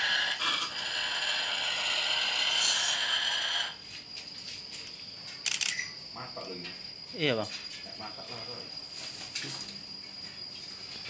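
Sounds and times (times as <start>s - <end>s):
buzzing insect call: 0.0s - 11.0s
thin high insect tone: 0.1s - 11.0s
sharp click: 5.4s - 5.8s.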